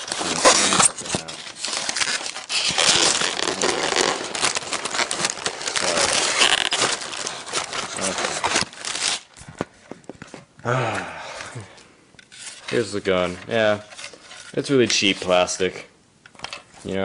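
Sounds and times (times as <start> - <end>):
styrofoam crackling and crunching: 0.0 - 9.4.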